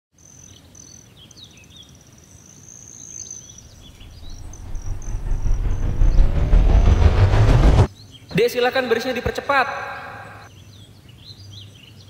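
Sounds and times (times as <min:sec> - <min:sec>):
low rumble: 0:03.6 - 0:07.9.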